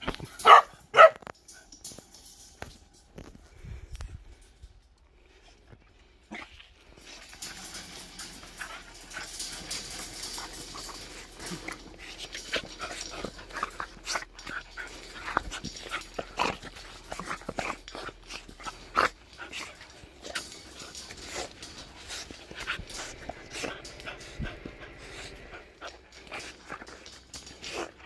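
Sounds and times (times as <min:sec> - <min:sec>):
puppies whining and panting: 0:06.9 - 0:28.0.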